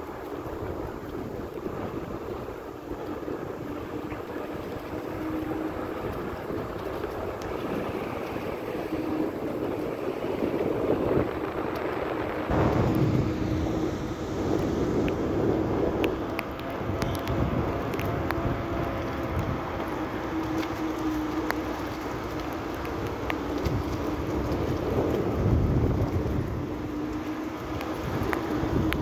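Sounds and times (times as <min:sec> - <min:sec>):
wind buffeting microphone: 0:00.0 - 0:29.0.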